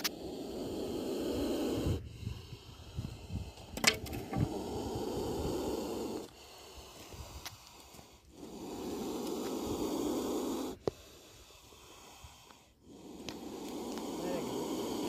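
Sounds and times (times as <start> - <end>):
snake hissing: 0.0 - 15.0
sharp click: 3.8 - 4.3.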